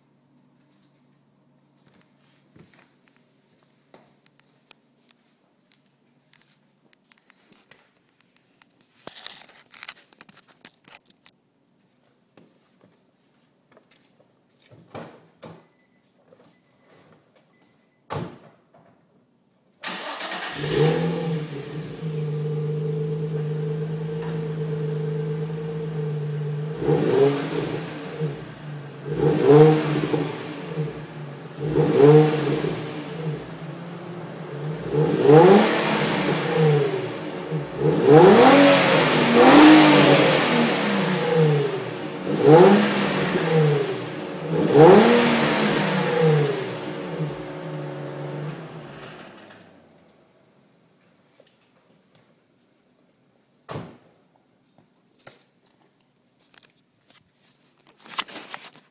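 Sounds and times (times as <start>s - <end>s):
car engine starting and revving: 19.8s - 50.0s.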